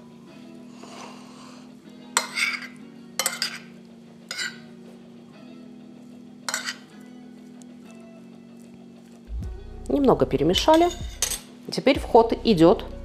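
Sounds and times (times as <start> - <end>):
soft background music: 0.0 - 13.0
metal spoon scraping ceramic bowl: 0.8 - 3.7, 4.3 - 4.7, 6.5 - 6.9.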